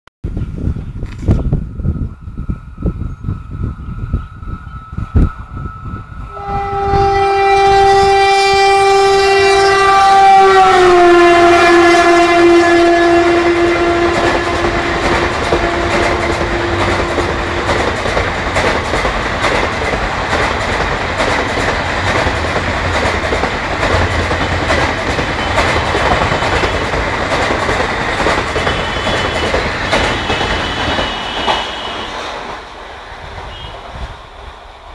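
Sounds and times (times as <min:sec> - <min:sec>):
locomotive horn blast: 0:06.3 - 0:17.8, 0:28.6 - 0:32.4, 0:33.4 - 0:34.0
train wheels clattering on track: 0:11.8 - 0:34.9.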